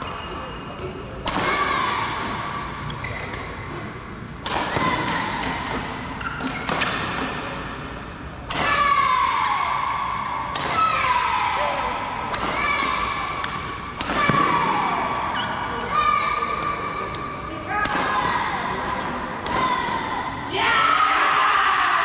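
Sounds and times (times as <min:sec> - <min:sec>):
racket hitting shuttlecock: 0:04.4 - 0:07.7, 0:12.3 - 0:14.7.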